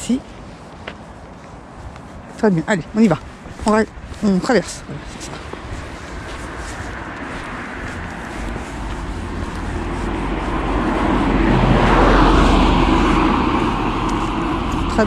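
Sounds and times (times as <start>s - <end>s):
car passing by: 5.0s - 15.0s.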